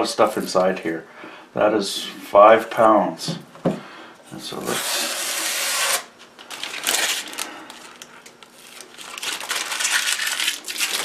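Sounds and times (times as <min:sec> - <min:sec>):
plastic packaging crinkling: 0:06.3 - 0:11.0.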